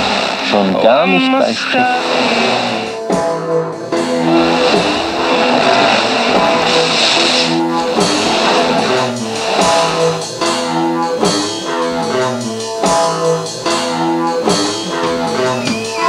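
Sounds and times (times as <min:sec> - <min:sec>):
drum kit: 0:00.0 - 0:16.0
strummed electric guitar chords: 0:00.0 - 0:16.0.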